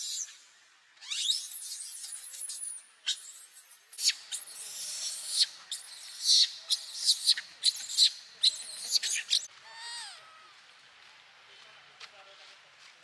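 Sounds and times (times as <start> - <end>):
infant monkey screaming: 1.0 - 10.6.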